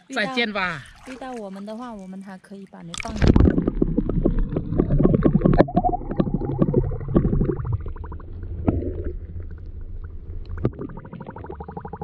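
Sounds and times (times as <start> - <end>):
muffled underwater gurgling: 2.9 - 12.0
low rumble: 3.1 - 12.0.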